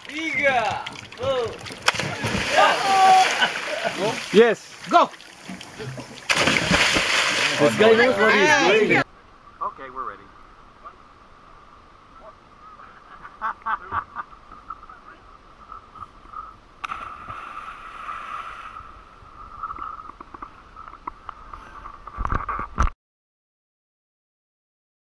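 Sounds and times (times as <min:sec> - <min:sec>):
splash into water: 0:00.0 - 0:07.8, 0:16.8 - 0:18.6
hiss of churned water: 0:17.2 - 0:19.1.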